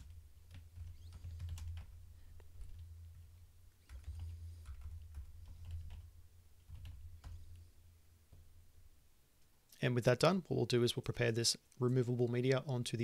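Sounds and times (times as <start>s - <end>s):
keyboard typing clicks: 0.0s - 1.9s, 3.8s - 7.5s.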